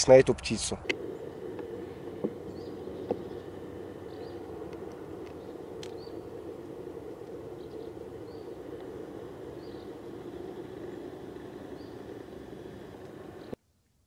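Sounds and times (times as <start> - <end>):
low background rumble: 0.6 - 13.6
faint high bird chirps: 2.4 - 13.6.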